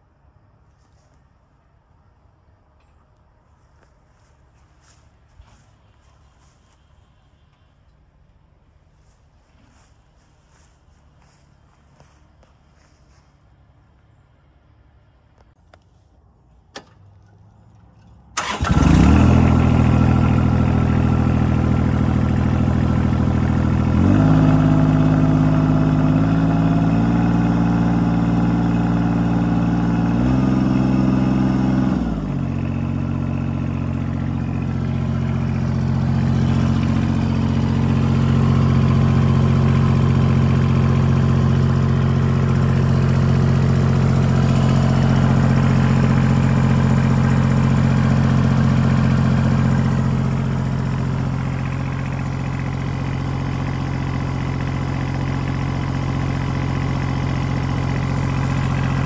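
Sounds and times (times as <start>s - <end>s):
diesel tractor engine starting: 16.7s - 59.0s
tractor engine revving: 18.3s - 59.0s.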